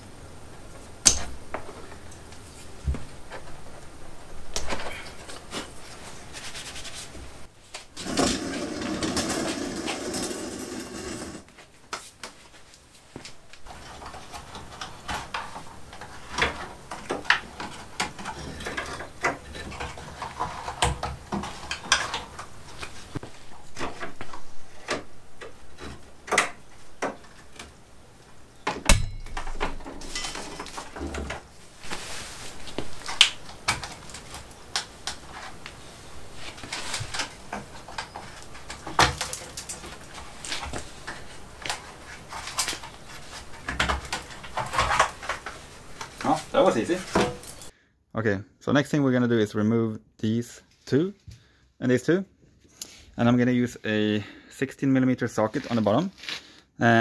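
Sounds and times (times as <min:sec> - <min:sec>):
plastic parts clicking and rustling: 0:13.3 - 0:27.8, 0:36.4 - 0:47.7.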